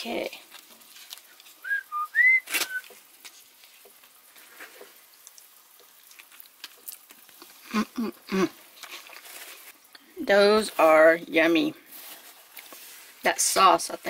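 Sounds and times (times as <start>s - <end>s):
faint chewing: 0.4s - 10.2s, 12.4s - 12.8s
high whistle-like chirp: 1.6s - 2.8s.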